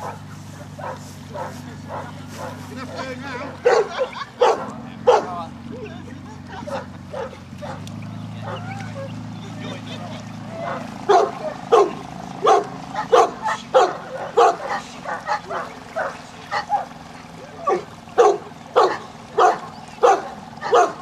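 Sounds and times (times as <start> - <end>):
dog barking: 0.0 - 3.0, 3.6 - 5.4, 6.6 - 9.2, 10.6 - 17.0, 17.6 - 21.0.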